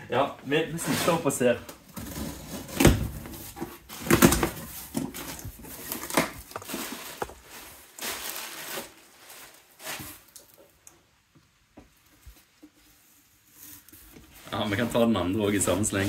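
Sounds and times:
plastic packing rustling: 1.9s - 10.9s, 13.6s - 16.0s.

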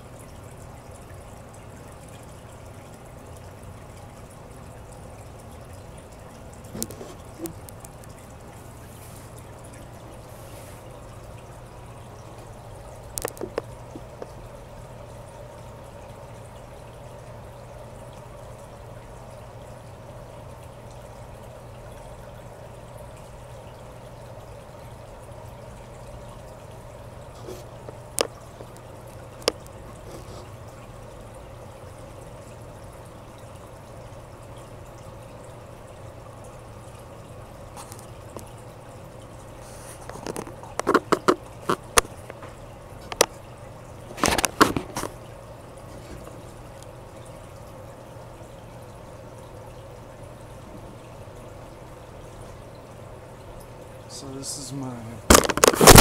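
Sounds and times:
filter water splashing and trickling: 0.0s - 56.0s
low steady hum: 0.0s - 56.0s
sharp clicks and knocks: 13.2s - 14.3s, 40.1s - 43.4s, 55.3s - 56.0s.

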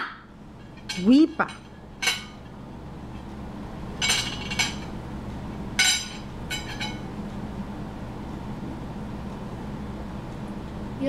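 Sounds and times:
low steady hum: 0.0s - 11.0s
dishes and cutlery clinking: 0.6s - 2.6s, 4.0s - 5.0s, 5.8s - 7.1s.

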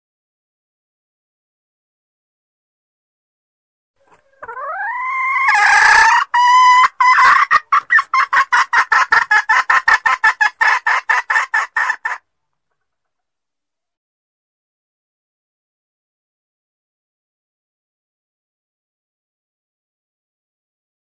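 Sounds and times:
junglefowl hen calling: 4.0s - 12.2s
hen clucking: 4.0s - 12.8s.

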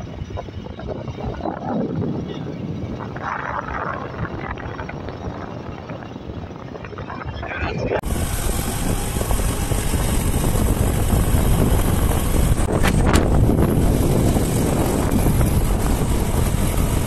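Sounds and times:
wind buffeting microphone: 0.0s - 17.0s
motorcycle engine running: 8.0s - 17.0s.

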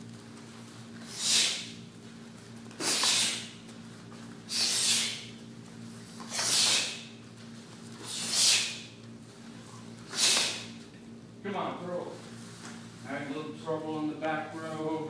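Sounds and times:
faint steady hum: 0.0s - 15.0s
sharp hissing exhalations: 1.0s - 1.8s, 2.8s - 3.6s, 4.5s - 5.3s, 6.2s - 7.1s, 8.0s - 8.9s, 10.1s - 10.7s.

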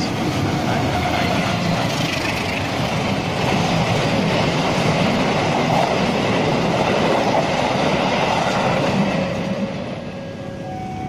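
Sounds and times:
train wheels rushing on rails: 0.0s - 10.2s.

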